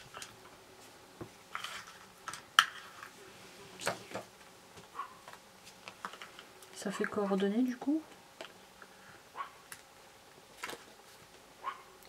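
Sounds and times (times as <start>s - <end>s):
paper rustling: 10.5s - 11.4s.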